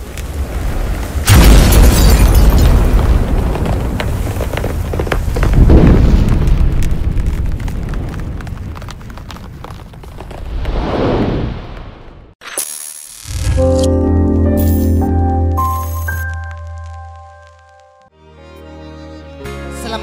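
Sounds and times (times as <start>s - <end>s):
crackles: 0.0s - 13.9s, 14.6s - 18.1s
deep boom with rumble: 5.5s - 8.8s.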